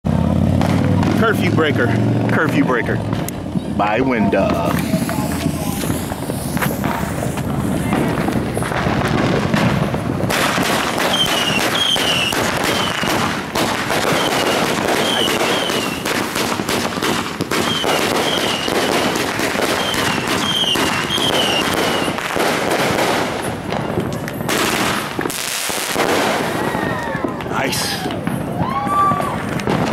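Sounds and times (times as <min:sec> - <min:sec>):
firework pops and crackles: 0:00.5 - 0:01.6, 0:02.2 - 0:29.9
falling firework whistles: 0:04.6 - 0:08.7, 0:10.4 - 0:22.3.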